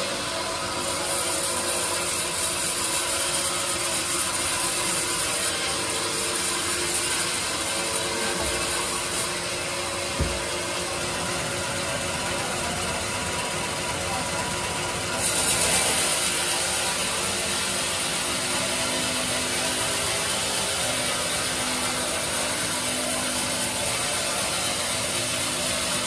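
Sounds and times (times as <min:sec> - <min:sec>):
band sawmill sawing log: 0:00.0 - 0:26.0
single knock: 0:10.2 - 0:10.4.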